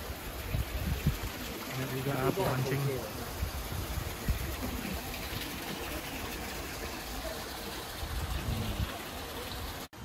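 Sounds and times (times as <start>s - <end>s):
water pouring into pond: 0.0s - 10.0s.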